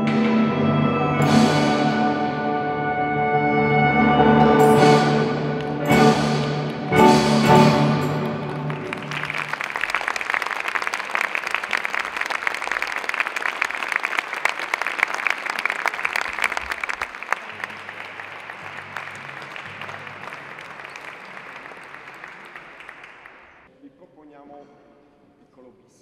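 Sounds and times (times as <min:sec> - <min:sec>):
audience applauding: 0:05.6 - 0:23.7.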